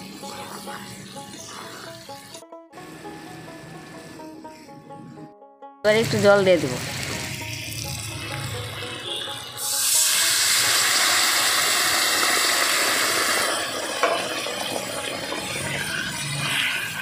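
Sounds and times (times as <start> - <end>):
water sizzling in hot oil: 0.0 - 2.4, 6.0 - 17.0.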